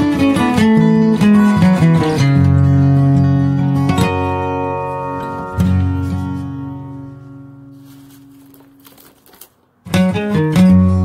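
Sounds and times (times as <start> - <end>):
plucked guitar chord ringing: 0.0 - 8.0.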